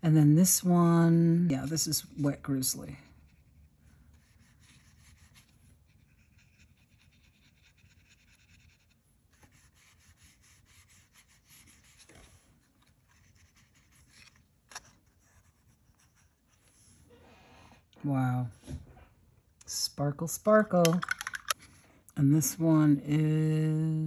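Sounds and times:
wet brush strokes on paper: 3.0s - 14.3s.

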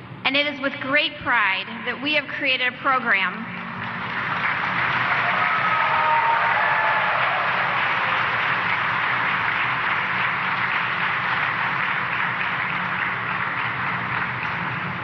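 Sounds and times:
audience applauding: 3.7s - 15.0s.

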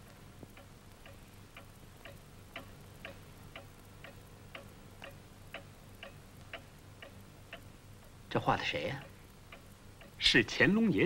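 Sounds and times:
clock ticking faintly: 0.0s - 11.0s.

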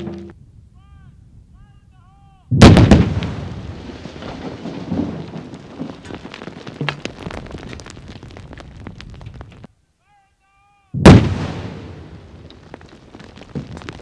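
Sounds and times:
blast boom and rumble: 2.5s - 5.9s
falling rock impacts: 2.6s - 9.7s, 11.0s - 14.0s.

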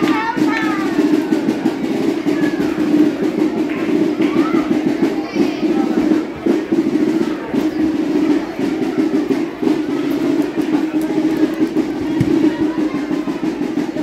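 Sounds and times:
parade band playing: 0.0s - 14.0s.

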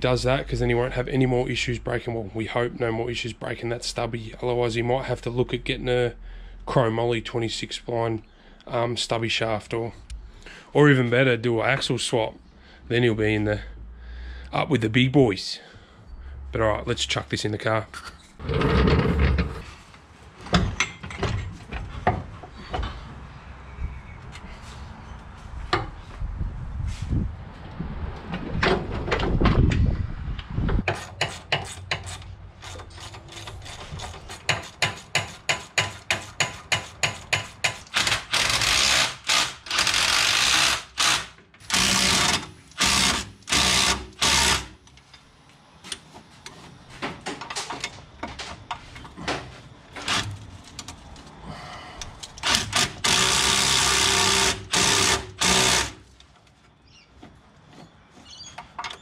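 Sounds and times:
low rumble with knocks: 28.0s - 30.9s
handheld power tool running: 37.9s - 44.7s, 52.4s - 56.0s.

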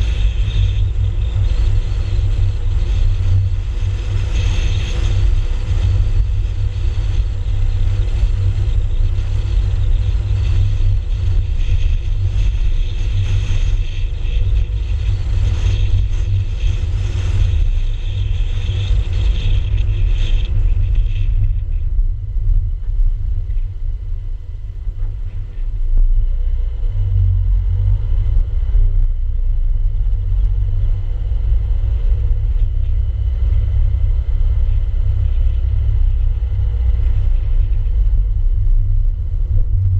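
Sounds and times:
wind rumble on microphone: 0.0s - 39.9s.

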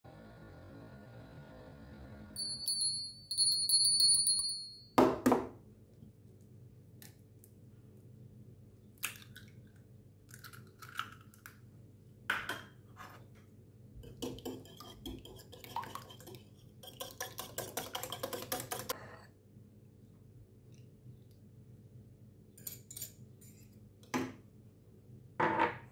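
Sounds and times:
high pulsing ringing: 2.4s - 5.0s
whisk beating egg in bowl: 14.0s - 19.2s.

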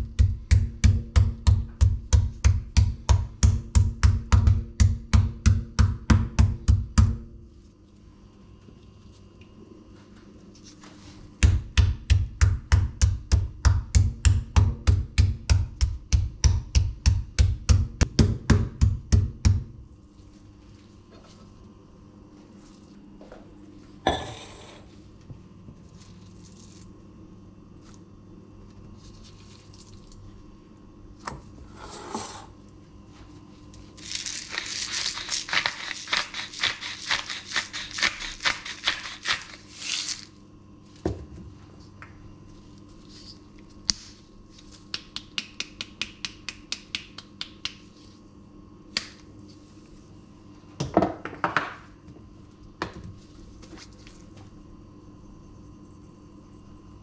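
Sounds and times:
salt grinder crackling: 34.0s - 40.3s.

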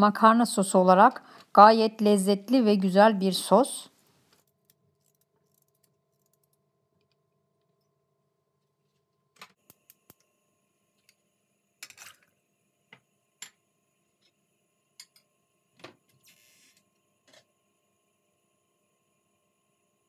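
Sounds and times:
faint irregular clicks: 4.3s - 7.8s.

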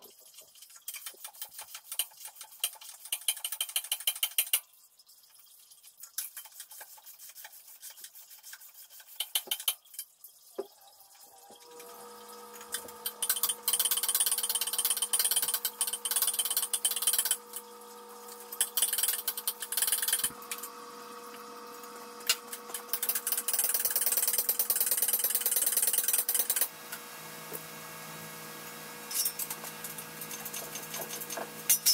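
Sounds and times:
power wrench rattling: 18.5s - 20.4s.

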